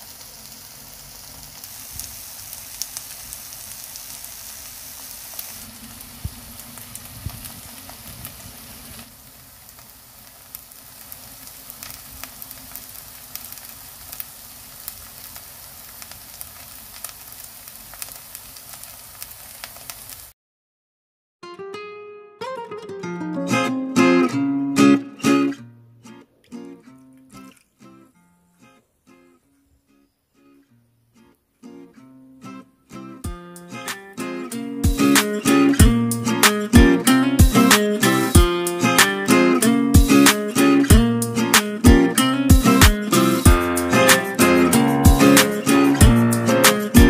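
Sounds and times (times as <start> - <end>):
pancake sizzling in a pan: 0.0 - 20.4, 33.8 - 47.0.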